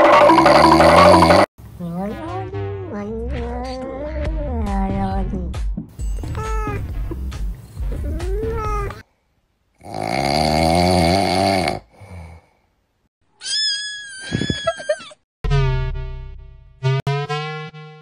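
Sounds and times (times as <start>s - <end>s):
cats meowing: 6.4s - 6.9s, 13.4s - 15.0s.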